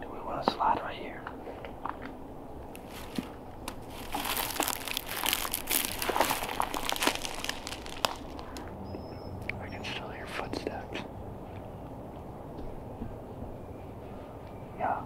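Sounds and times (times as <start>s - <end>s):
twigs snapping: 1.2s - 8.7s
dry leaves crackling underfoot: 2.7s - 8.8s.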